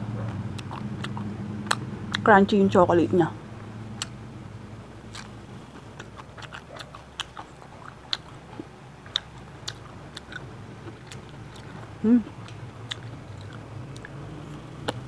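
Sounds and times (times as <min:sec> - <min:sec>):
crunchy chewing: 0:00.2 - 0:02.3, 0:04.0 - 0:04.2, 0:05.0 - 0:15.0
mouth clicks: 0:04.0 - 0:04.2.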